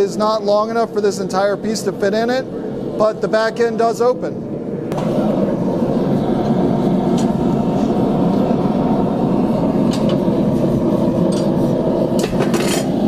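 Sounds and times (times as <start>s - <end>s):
forge burner rushing: 0.0s - 13.0s.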